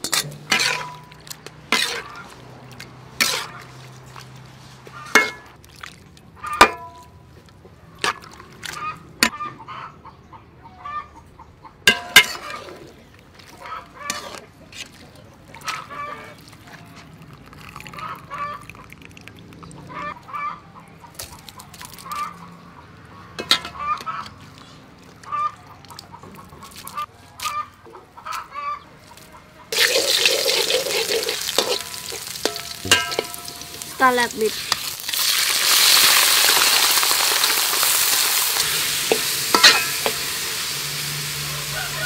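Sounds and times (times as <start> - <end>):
spatula stirring in wok: 0.0 - 5.4, 14.0 - 14.9, 29.8 - 35.5, 37.5 - 41.5
fowl calling: 25.2 - 34.1, 41.3 - 42.0
garlic sizzling in oil: 29.7 - 42.0.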